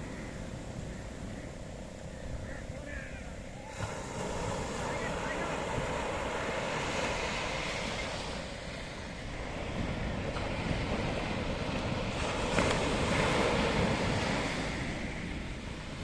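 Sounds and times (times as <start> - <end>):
ocean surf breaking on beach: 0.0 - 16.0.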